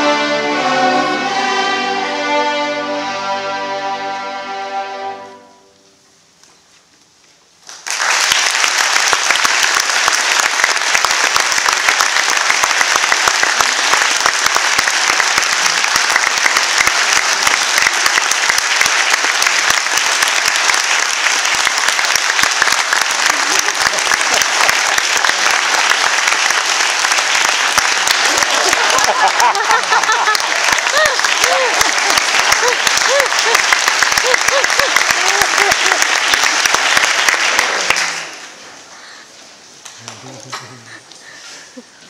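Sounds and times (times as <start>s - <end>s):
audience applauding: 7.6s - 39.2s.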